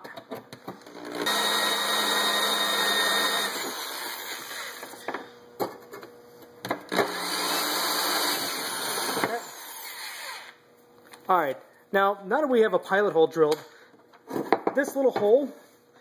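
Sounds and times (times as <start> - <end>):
electric drill drilling metal: 0.8 - 5.1, 6.9 - 10.6.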